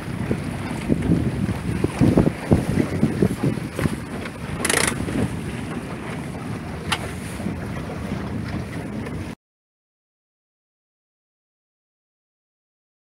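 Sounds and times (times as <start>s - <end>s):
wind buffeting microphone: 0.0s - 9.4s
sharp click: 4.6s - 5.0s.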